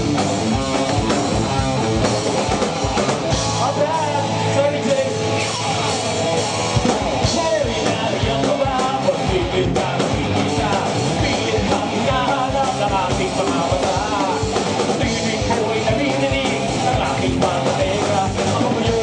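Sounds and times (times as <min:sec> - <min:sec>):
rock band playing: 0:00.0 - 0:19.0
man singing: 0:03.6 - 0:05.8, 0:07.2 - 0:19.0.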